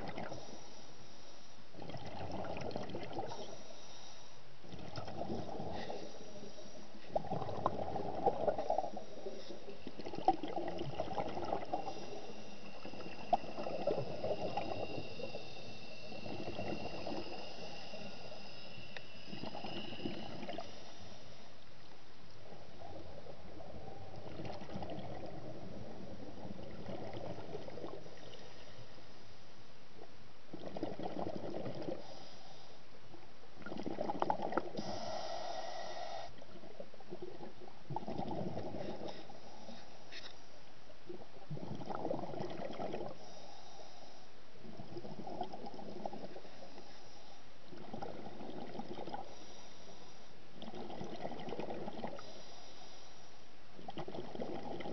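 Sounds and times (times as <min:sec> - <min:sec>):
underwater bubbles from regulator: 0:00.0 - 0:00.4, 0:01.8 - 0:03.6, 0:04.7 - 0:06.0, 0:07.0 - 0:18.4, 0:22.8 - 0:28.0, 0:30.5 - 0:32.0, 0:33.6 - 0:34.8, 0:37.1 - 0:39.1, 0:41.5 - 0:43.2, 0:47.7 - 0:49.3, 0:50.6 - 0:52.3, 0:53.8 - 0:54.9
low hiss: 0:00.0 - 0:54.9.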